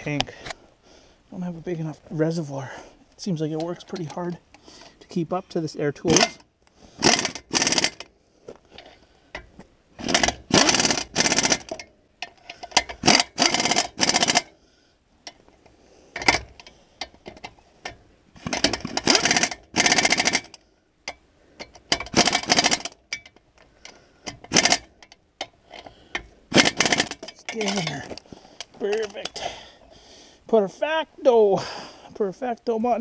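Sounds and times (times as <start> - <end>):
pneumatic impact wrench hammering: 6.1 - 8.1, 9.4 - 14.5, 16.2 - 16.7, 18.4 - 20.6, 21.6 - 28.2.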